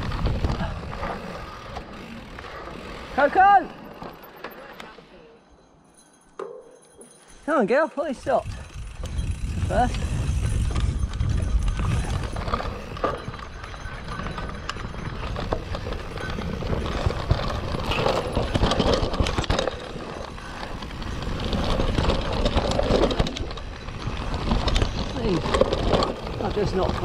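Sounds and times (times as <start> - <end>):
bike tyres rolling over dirt: 0.0 - 4.9, 8.2 - 27.0
bike chain and frame rattling: 0.0 - 27.0.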